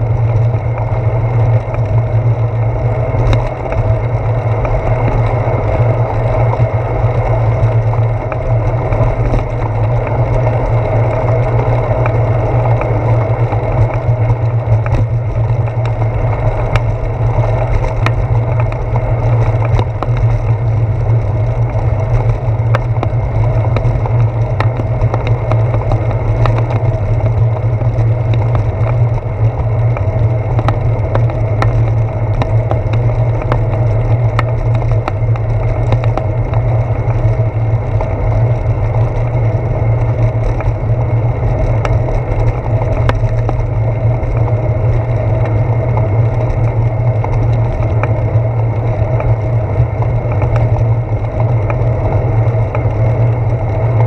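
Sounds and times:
bicycle rolling on pavement: 0.0 - 54.0
small clicks and rattles: 0.0 - 54.0.

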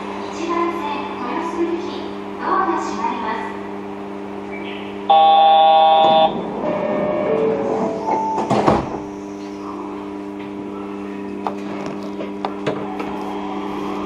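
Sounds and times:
train equipment hum: 0.0 - 10.6
loud electric buzzer: 5.1 - 7.3.

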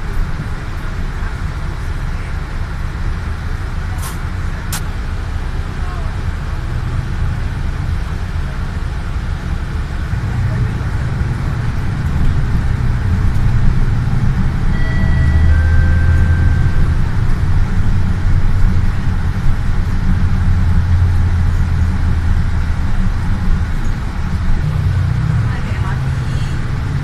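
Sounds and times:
road vehicle rumbling: 0.0 - 27.0
high-pitched whine: 14.6 - 18.4.

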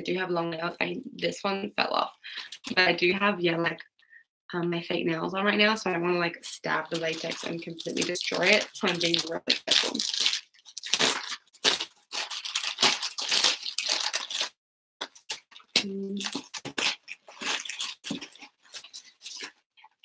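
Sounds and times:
plastic bag crinkling and tearing: 6.8 - 19.6
person humming: 15.8 - 16.3.

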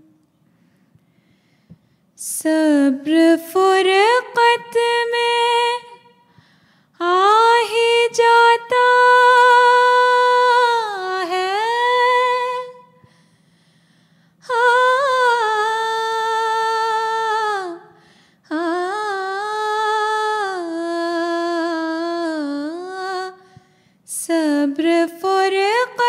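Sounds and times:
woman singing without words: 2.2 - 6.2, 7.0 - 12.9, 14.4 - 23.4, 24.1 - 26.0.

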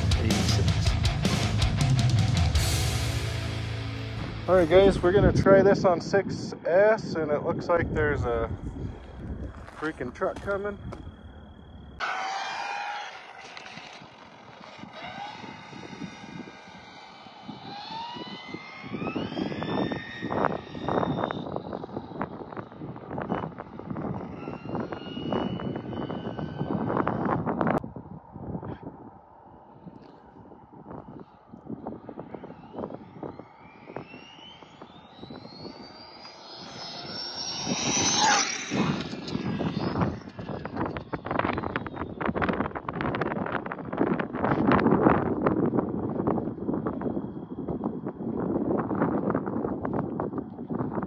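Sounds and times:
wind buffeting microphone: 4.1 - 12.0, 13.0 - 51.0
electric motor whining: 8.0 - 27.8, 31.0 - 50.0.

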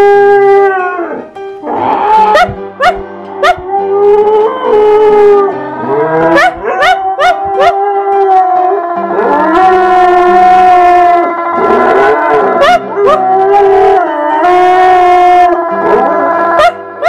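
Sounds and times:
dog howling: 0.0 - 17.0
dog yelping: 2.0 - 3.6, 16.6 - 16.8.

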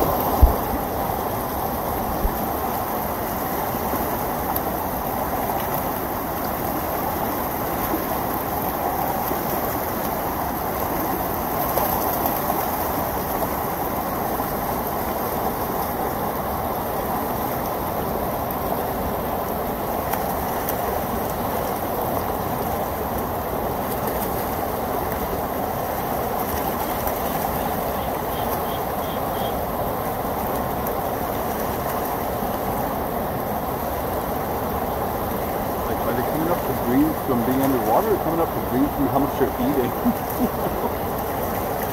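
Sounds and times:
water pouring over a wall: 35.8 - 40.1.

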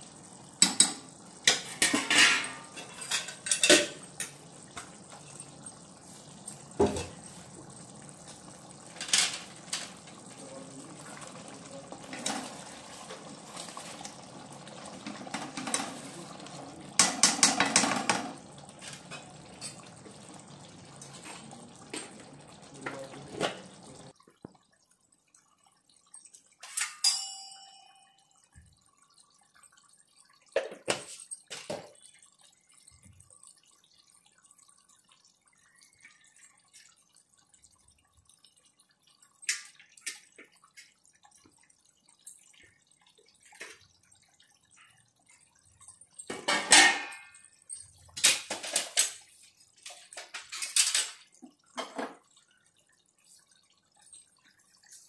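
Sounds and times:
curry bubbling: 0.0 - 55.0
utensils knocking and clinking: 17.0 - 18.4.

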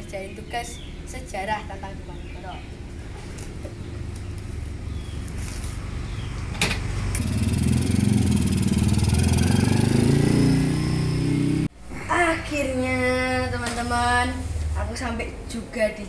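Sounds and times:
motorcycle engine revving: 3.7 - 11.7.

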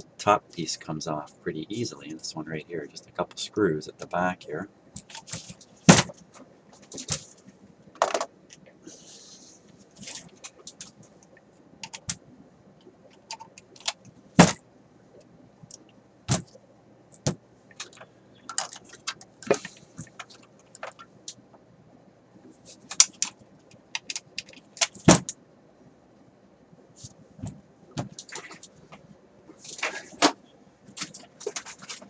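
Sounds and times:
metal radio case clicks and knocks: 8.0 - 8.3, 22.9 - 23.4, 24.0 - 25.4.

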